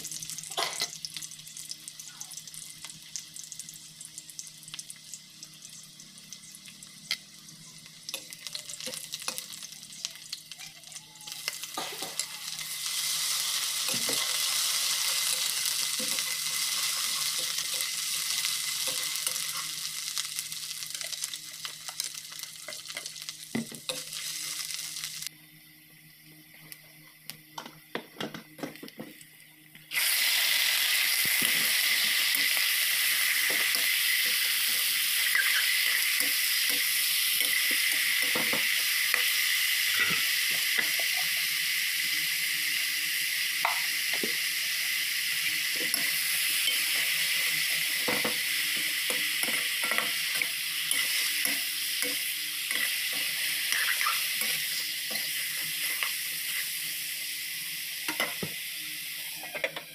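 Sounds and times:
meat sizzling in hot oil: 0.0 - 25.3, 29.8 - 59.9
spoon scraping and clinking wok: 49.1 - 56.1.

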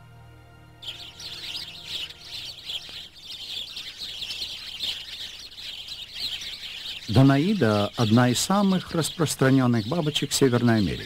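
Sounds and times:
small birds chirping and twittering: 0.6 - 11.0.

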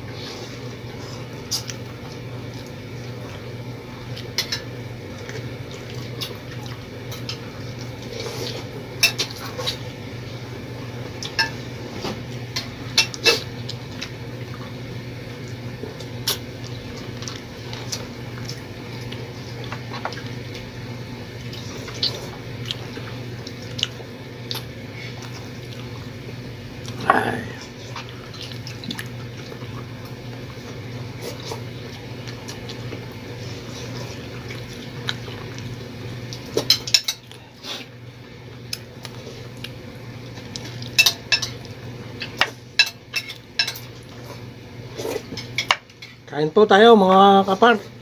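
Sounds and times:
steady low hum: 0.0 - 40.7
spoons clinking on plates: 42.8 - 43.8.

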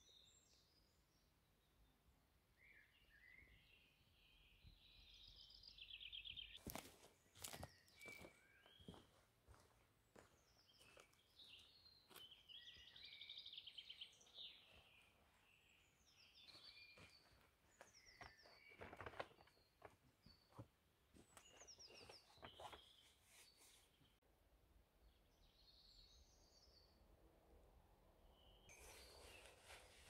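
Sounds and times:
birds chirping and trilling: 2.6 - 20.6, 21.2 - 24.2
knocks and rustles of movement: 17.1 - 23.2.

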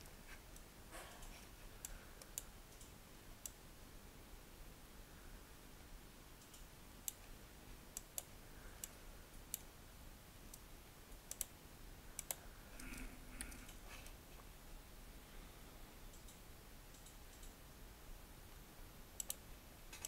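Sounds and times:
low room hiss: 0.0 - 20.0
mouse and keyboard clicks: 19.2 - 20.0.

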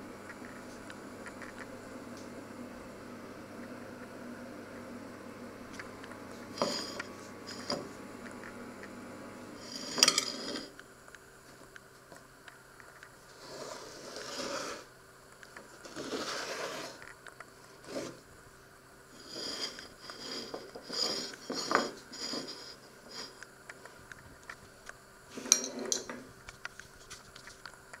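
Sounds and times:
plate set down: 6.6 - 7.9, 9.8 - 10.7
pizza scraping on wooden board: 13.3 - 14.9, 15.8 - 17.0, 17.8 - 18.2, 19.2 - 23.4.

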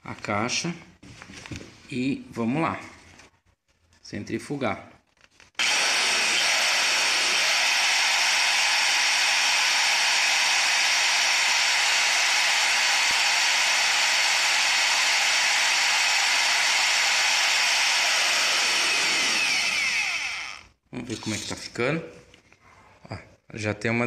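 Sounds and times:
electric drill whining: 5.6 - 20.8.

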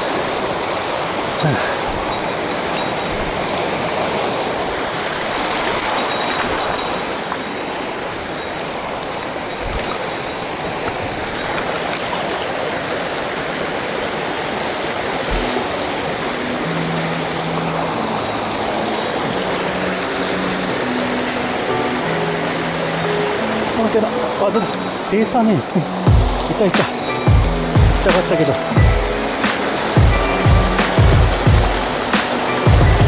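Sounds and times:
water rushing over rocks: 0.0 - 33.0
background music with low notes: 15.3 - 33.0.

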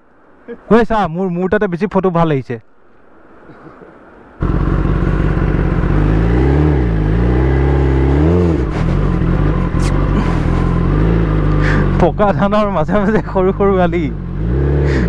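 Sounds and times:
motorcycle engine running: 4.4 - 12.2.

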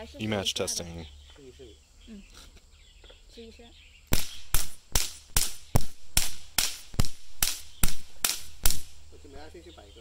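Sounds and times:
electric matches popping: 4.1 - 9.1.

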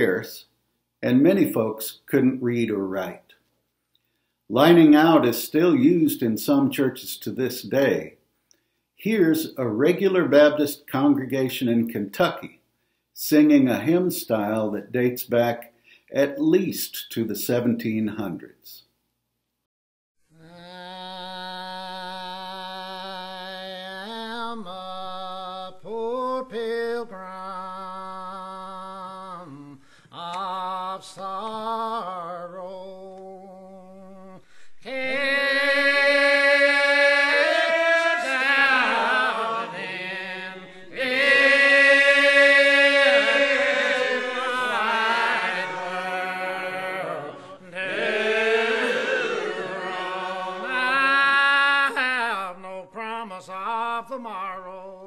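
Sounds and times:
congregation singing a hymn: 34.8 - 54.8
leader chanting hymn line: 34.9 - 52.7.

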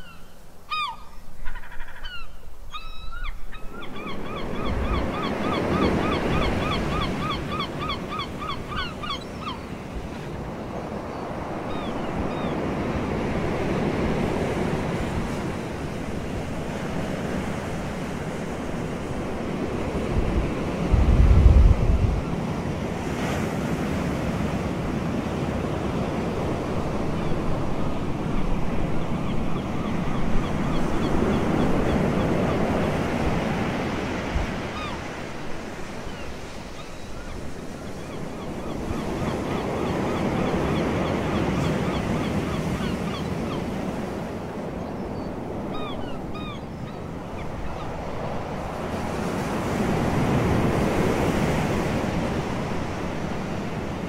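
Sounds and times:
wind on microphone: 19.1 - 22.7.

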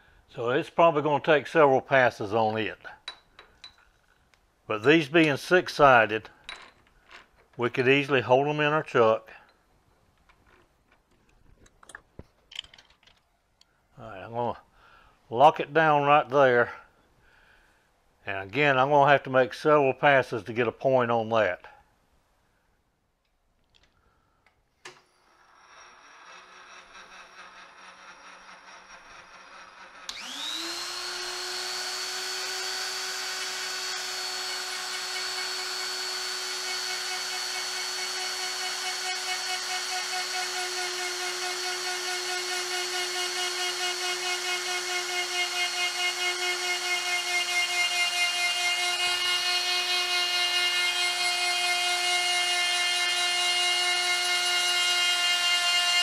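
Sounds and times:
die grinder high whine: 25.2 - 56.0
lathe motor hum: 25.8 - 54.8.

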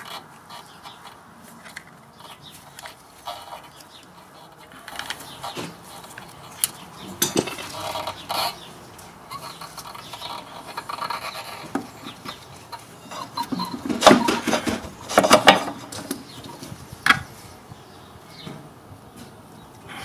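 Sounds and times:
metal clinks and scrapes: 0.0 - 8.7.

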